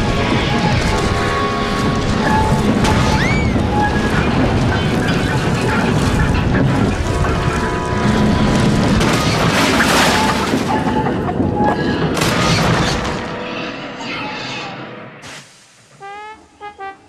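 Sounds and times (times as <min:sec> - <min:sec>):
loud train crash: 0:00.0 - 0:13.5
background music: 0:00.0 - 0:17.0.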